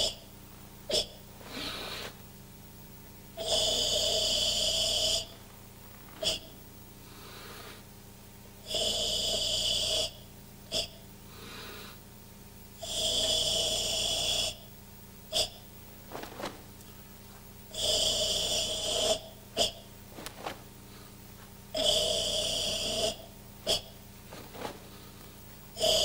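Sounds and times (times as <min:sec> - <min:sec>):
quiet inhalations: 0:00.0 - 0:10.3, 0:11.1 - 0:15.0, 0:15.8 - 0:23.4, 0:24.0 - 0:26.0
loud hissing exhalations: 0:00.9 - 0:02.4, 0:03.4 - 0:08.0, 0:11.3 - 0:12.1, 0:17.7 - 0:26.0.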